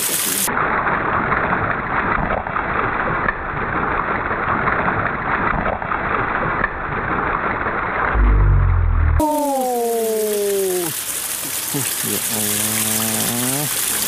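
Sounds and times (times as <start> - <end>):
stream water flowing: 0.0 - 0.5, 2.0 - 14.0.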